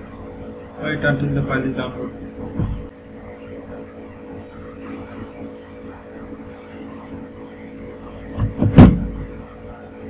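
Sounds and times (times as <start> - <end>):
background hum and hiss: 0.0 - 10.0
short low thump: 2.4 - 2.9, 8.4 - 9.3.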